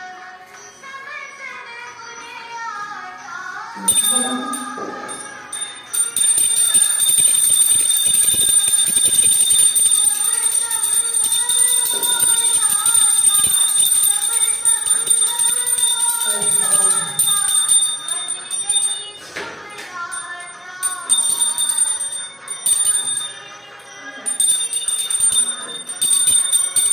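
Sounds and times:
wavering melody music: 3.4 - 26.9
hand bell ringing: 3.8 - 26.9.

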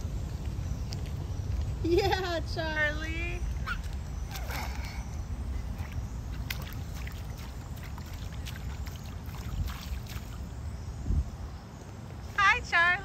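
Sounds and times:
steady low rumble: 0.0 - 13.0
puddle water splashing: 3.6 - 10.6.

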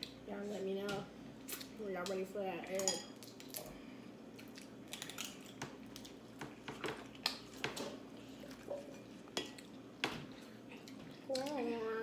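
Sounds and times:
crab legs cracking: 4.3 - 6.5
chewing: 4.3 - 11.6.

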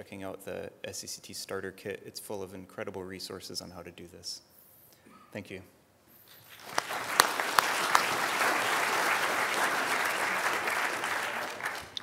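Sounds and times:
audience applauding: 6.5 - 12.0
single sharp claps: 6.6 - 12.0.

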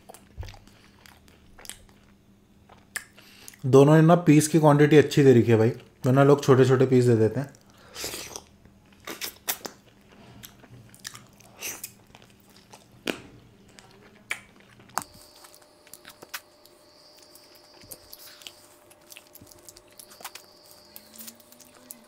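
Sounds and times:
biting and chewing chicken: 8.0 - 22.0.

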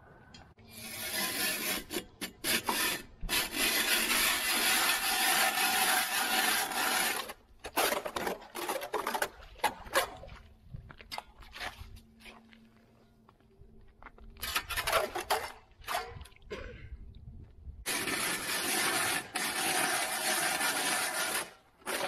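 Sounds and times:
ice auger scraping: 0.7 - 10.2, 17.9 - 22.0
ice auger hissing rasp: 17.9 - 22.0.

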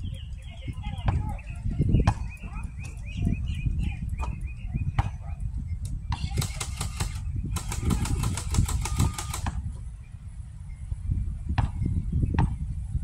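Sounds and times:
wind buffeting microphone: 0.0 - 13.0
fast run of sharp clicks: 5.8 - 9.6.

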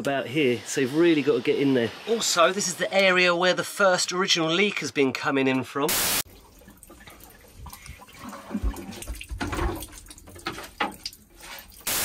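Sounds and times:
static hiss: 0.0 - 3.4, 5.9 - 6.2
water trickling and spraying: 0.0 - 4.0, 5.9 - 12.0.

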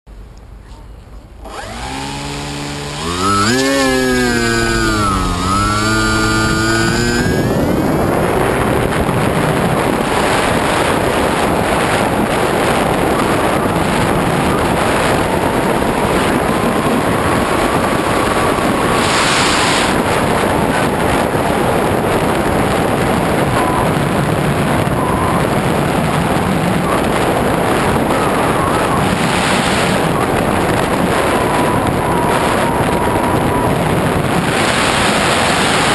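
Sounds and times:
rushing wind noise: 1.3 - 35.9
electric motor whine: 1.4 - 21.1
propeller noise: 1.4 - 35.9.

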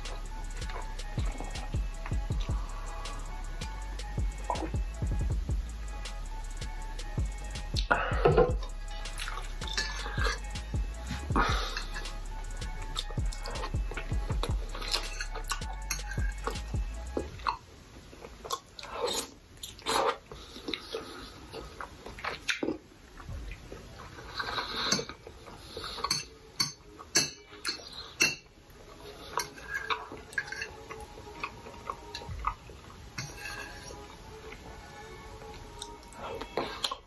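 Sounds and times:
wet chewing sounds: 7.7 - 10.5, 12.9 - 34.7, 35.4 - 37.0.

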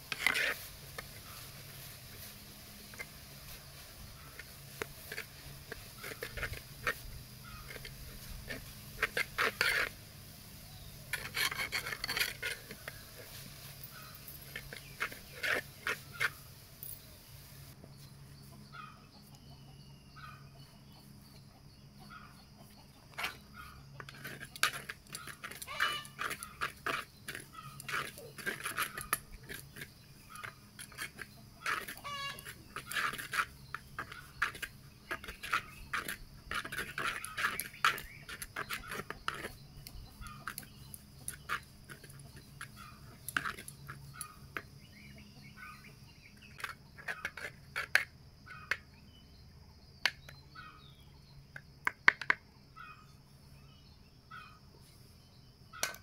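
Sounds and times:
metal spatula scraping a pan: 0.0 - 10.0, 10.8 - 16.5, 23.2 - 44.7, 46.4 - 48.7
chickens clucking: 17.7 - 47.3.

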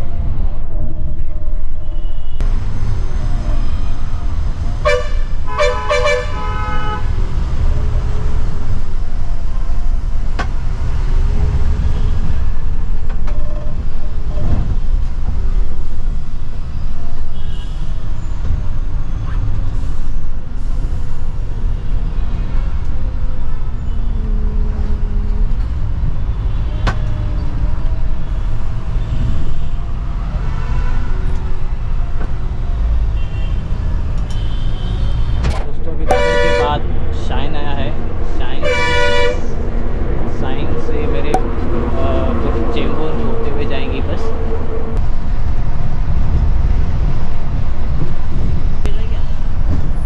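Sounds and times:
bus engine and road rumble: 0.0 - 50.0
horn short toots: 4.9 - 7.0, 36.1 - 36.8, 38.6 - 39.5.

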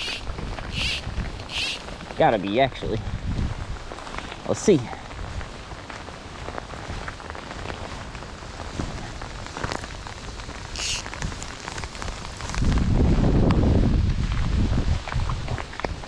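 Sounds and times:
close raindrop ticks: 0.0 - 16.0
steady rain falling: 0.0 - 16.0.

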